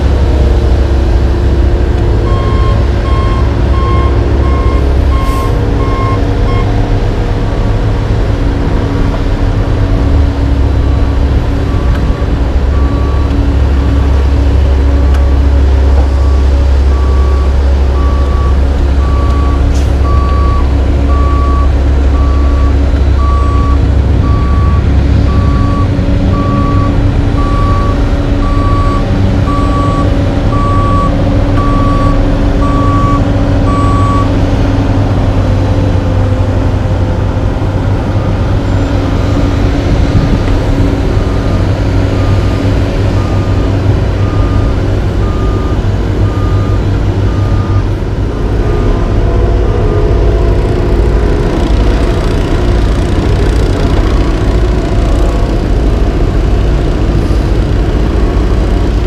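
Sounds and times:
diesel engines running: 0.0 - 59.0
back-up alarm beeping: 2.3 - 6.8, 16.2 - 34.3, 44.2 - 47.8.

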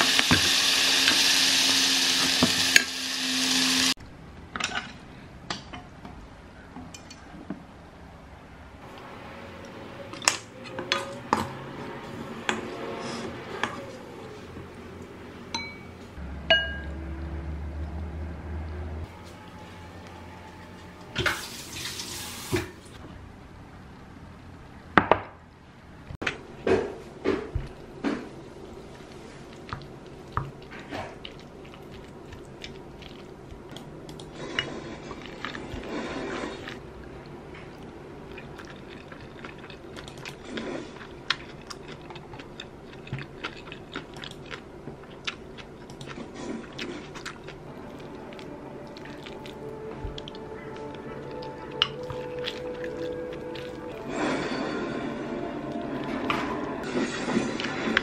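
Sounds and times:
ceramic bowl clinking on stone: 15.5 - 15.9, 16.5 - 16.9.

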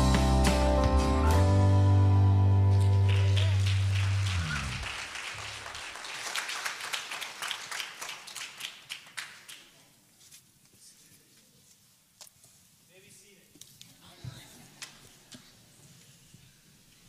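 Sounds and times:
congregation clapping: 2.7 - 10.0.

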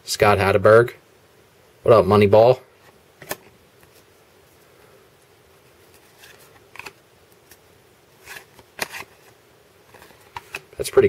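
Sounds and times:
cardboard cards rustling: 5.8 - 11.0.

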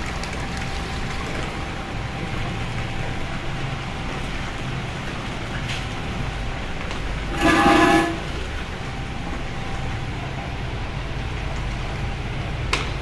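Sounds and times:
liquid churning: 7.2 - 8.8
short horn-like tone: 7.3 - 8.4.

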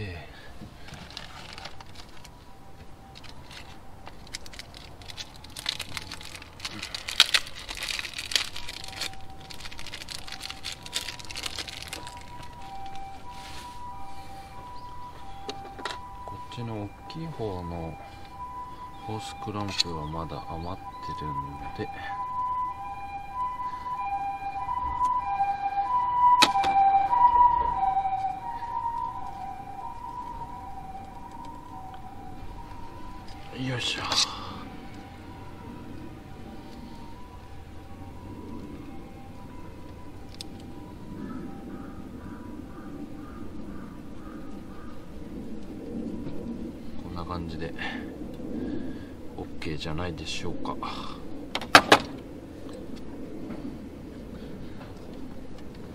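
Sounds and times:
two-tone ambulance siren: 0.0 - 49.6
hoses rustling and crinkling: 0.5 - 26.0, 27.7 - 41.6.

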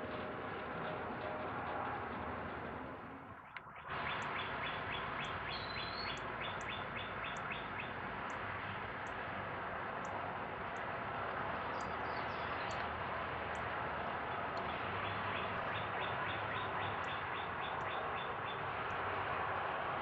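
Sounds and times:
small birds chirping: 3.7 - 9.2, 11.6 - 19.1.

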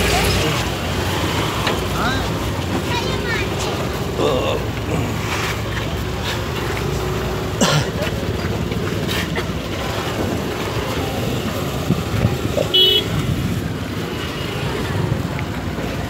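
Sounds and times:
crowd noise: 0.0 - 16.0
engine rumble: 0.0 - 16.0
vehicle horn toot: 12.7 - 13.3.

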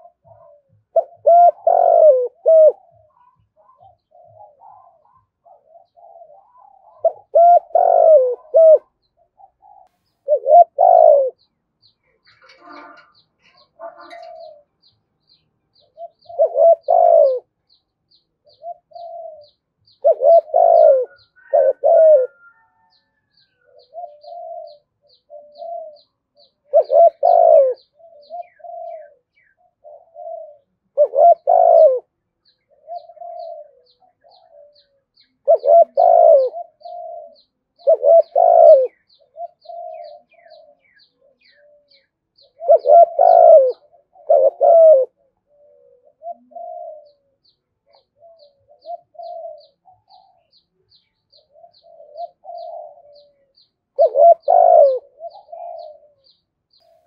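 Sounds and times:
dove cooing: 0.0 - 11.5, 12.2 - 56.8.

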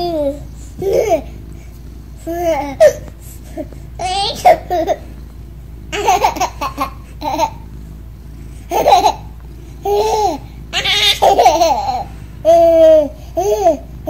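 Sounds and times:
baby laughing and squealing: 9.9 - 13.8.

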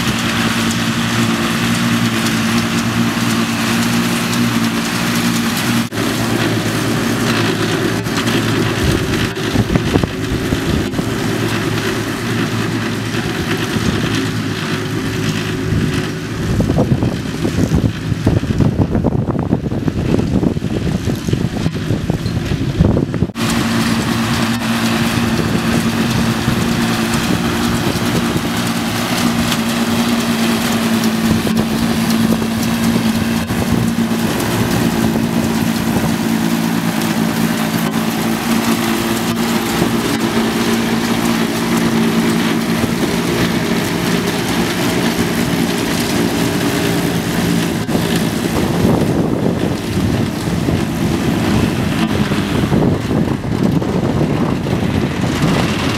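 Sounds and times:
forage harvester rushing noise: 0.0 - 55.9
tractor engine drone: 0.0 - 55.9.

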